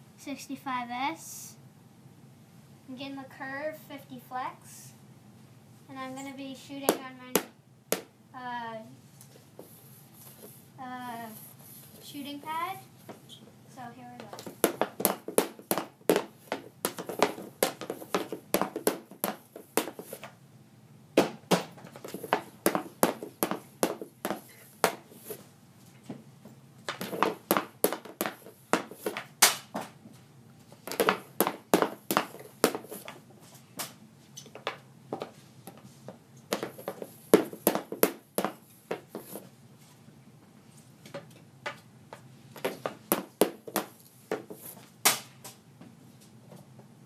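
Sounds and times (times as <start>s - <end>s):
hockey stick striking pucks: 14.4s - 20.3s, 21.2s - 25.1s, 26.9s - 29.9s, 30.9s - 33.2s, 45.1s - 45.4s.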